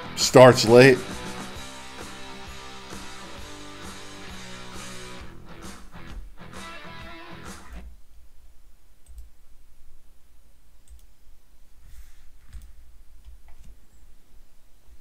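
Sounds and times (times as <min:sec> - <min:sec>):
music: 0:00.0 - 0:07.9
low room hum: 0:07.8 - 0:15.0
soft rustle: 0:07.8 - 0:15.0
faint clicks: 0:09.0 - 0:09.3, 0:10.8 - 0:11.2, 0:12.4 - 0:14.1.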